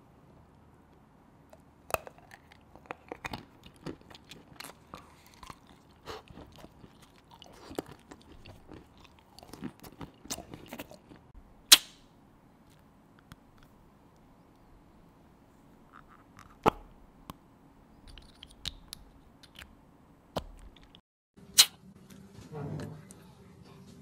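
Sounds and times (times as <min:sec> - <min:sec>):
chewing chocolate crunches: 0:01.9 - 0:11.3.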